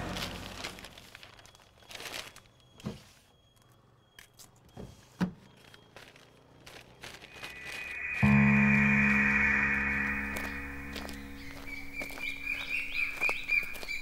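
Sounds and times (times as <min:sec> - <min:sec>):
quiet shop ambience: 0:00.0 - 0:14.0.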